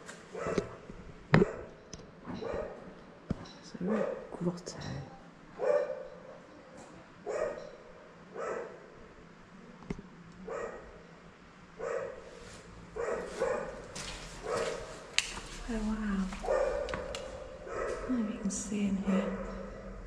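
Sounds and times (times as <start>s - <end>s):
dog barking: 0.3s - 0.8s, 2.3s - 2.9s, 3.8s - 4.4s, 5.6s - 6.3s, 7.2s - 8.8s, 10.4s - 11.0s, 11.8s - 12.3s, 13.0s - 15.1s, 16.4s - 18.1s, 19.0s - 20.0s.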